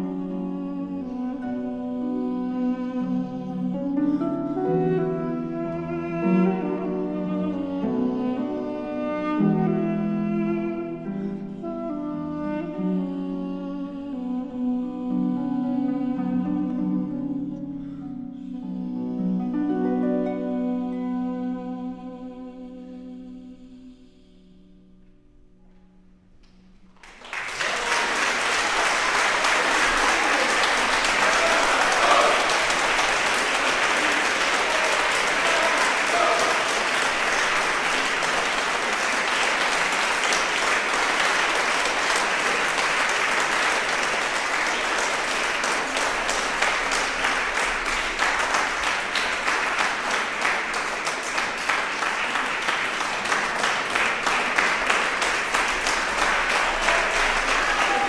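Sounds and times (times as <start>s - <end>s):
audience applauding: 26.9s - 58.0s.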